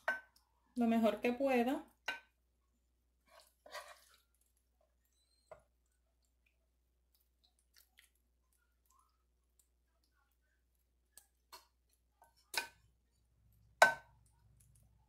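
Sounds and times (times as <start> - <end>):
wooden spoon scraping glass dish: 3.3 - 4.2.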